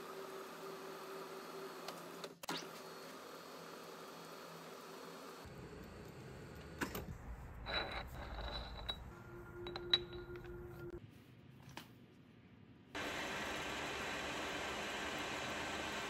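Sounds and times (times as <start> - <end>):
steady hum: 5.5 - 11.0
metal lathe drilling into metal bar: 13.0 - 16.0.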